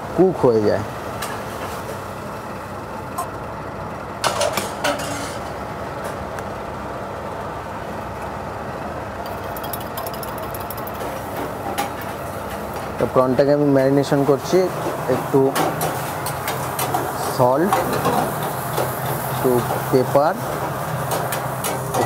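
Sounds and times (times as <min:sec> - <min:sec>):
kitchen ventilation hum: 0:00.0 - 0:22.0
knife clinking on steel bowl: 0:09.3 - 0:11.1.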